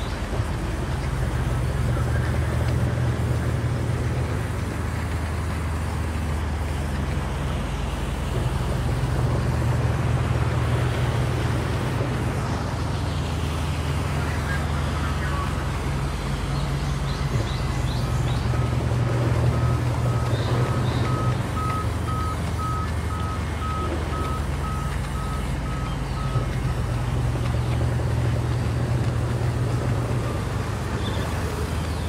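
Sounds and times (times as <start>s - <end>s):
reversing beeper: 18.4s - 27.0s.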